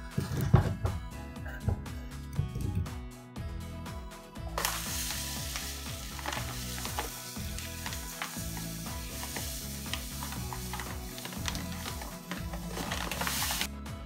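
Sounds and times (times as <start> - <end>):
sugar pouring onto fruit: 4.6 - 13.7.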